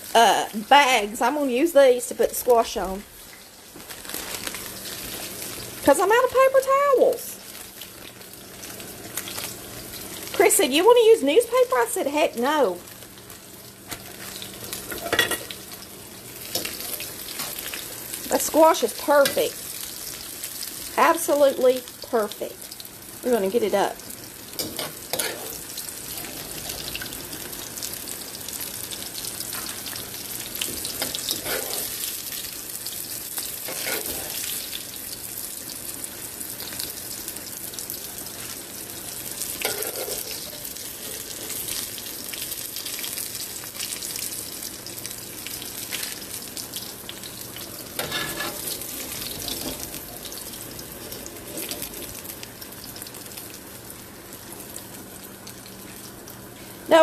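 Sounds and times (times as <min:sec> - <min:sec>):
food sizzling in hot oil: 0:00.0 - 0:57.0
metal spoon stirring in wok: 0:24.6 - 0:25.6, 0:30.9 - 0:32.0, 0:33.6 - 0:34.4, 0:39.6 - 0:41.6, 0:48.0 - 0:48.7.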